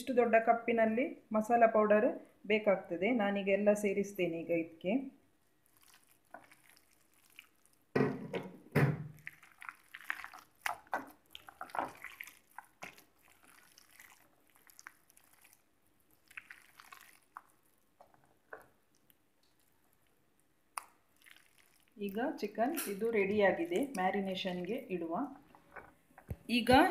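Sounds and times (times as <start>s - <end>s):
hand squelching meat in marinade: 5.6s - 7.9s, 9.2s - 24.0s.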